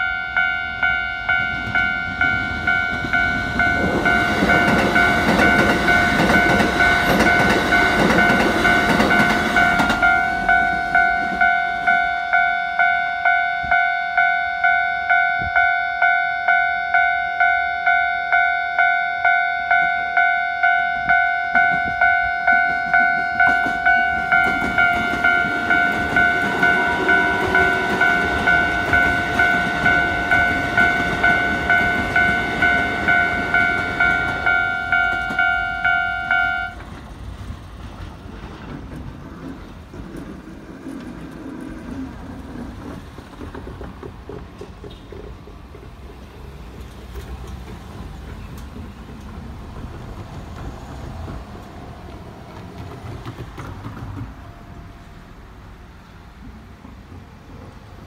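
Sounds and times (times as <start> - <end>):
level crossing bell ringing: 0.0 - 36.8
train rumble: 0.0 - 58.0
train wheels on rail joints: 0.0 - 58.0.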